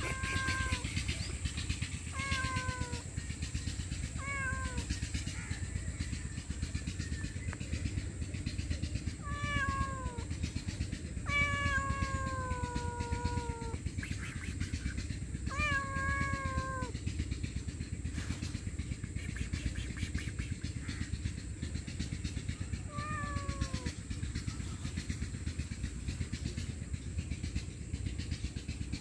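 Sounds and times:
cat meowing: 0.0s - 0.9s, 2.1s - 3.1s, 4.2s - 4.9s, 9.2s - 10.3s, 11.2s - 13.8s, 15.5s - 16.9s, 22.8s - 23.9s
low background rumble: 0.0s - 29.0s.

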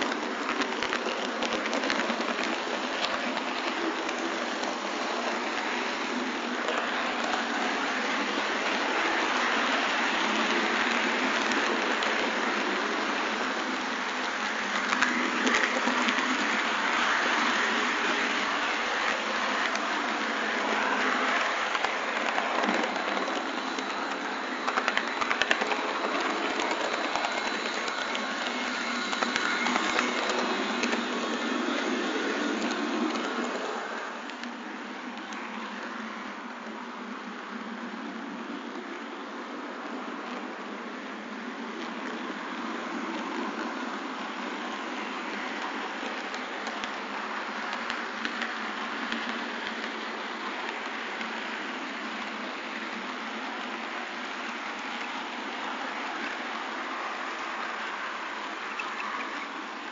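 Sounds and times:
model train wheels on rail: 0.0s - 59.9s.

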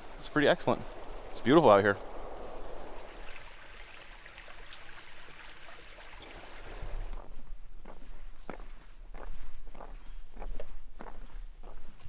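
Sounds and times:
brook flowing water: 0.0s - 7.2s.

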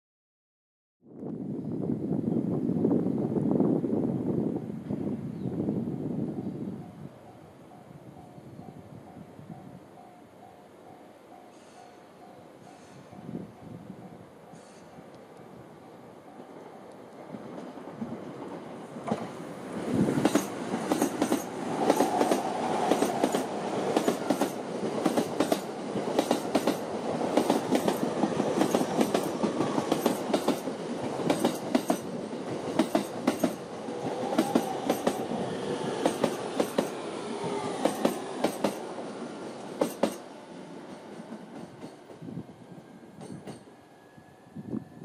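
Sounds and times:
train rumbling past: 1.4s - 45.0s
wheels clacking over rail joints: 20.2s - 40.3s.

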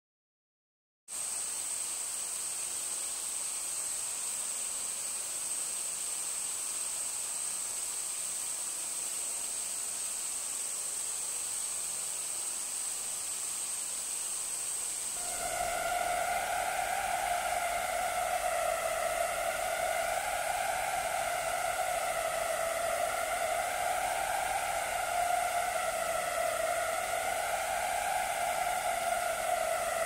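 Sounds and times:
steady high-pitched hiss: 1.1s - 30.0s
thin high whine: 8.8s - 30.0s.

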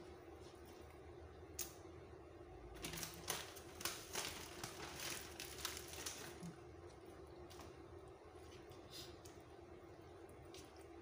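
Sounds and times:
plastic bag crinkling: 2.8s - 6.6s.

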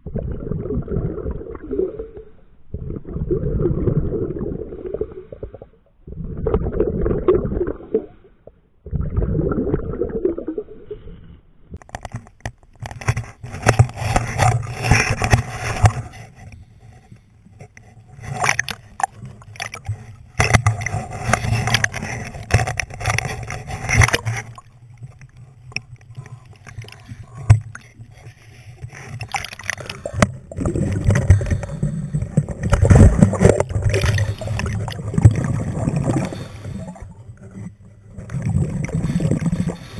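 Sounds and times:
muffled underwater rumbling: 0.0s - 12.0s, 12.8s - 39.9s
water sloshing and splashing: 11.8s - 39.9s.

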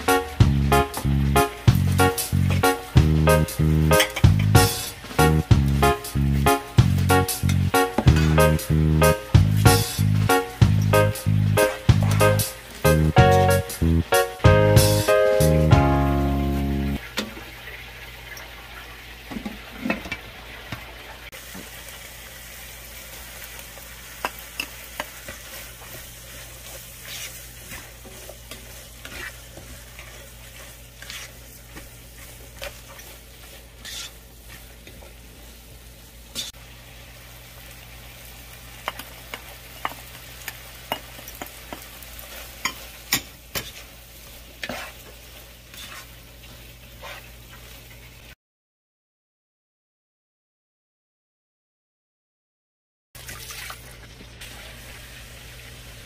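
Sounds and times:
vegetables sizzling in a frying pan: 0.0s - 48.4s, 54.2s - 56.0s
spatula scraping and tapping pan: 3.9s - 4.6s, 7.4s - 8.5s, 24.2s - 35.1s, 38.8s - 46.1s, 47.0s - 47.6s.

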